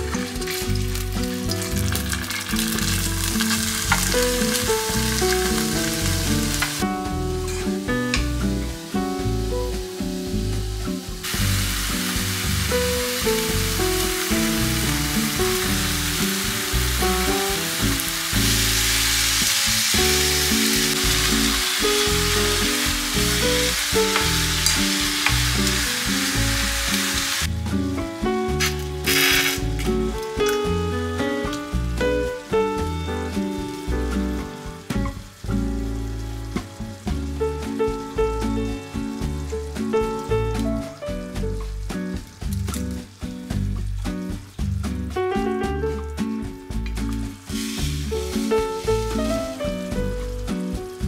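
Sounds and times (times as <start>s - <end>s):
background music: 0.0s - 51.0s
food sizzling in oil: 0.0s - 51.0s
vegetables tipped from metal tray: 28.6s - 30.6s.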